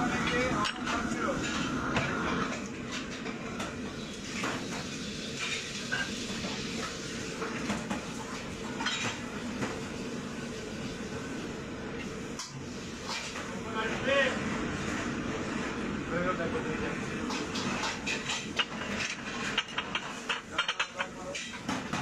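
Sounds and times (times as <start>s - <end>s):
dishes and pots clinking: 0.2s - 9.8s, 17.2s - 22.0s.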